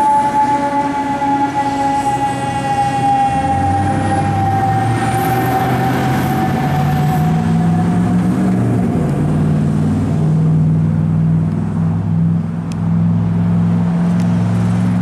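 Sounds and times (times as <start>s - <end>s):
siren: 0.0s - 9.0s
vehicle engine droning: 0.0s - 15.0s.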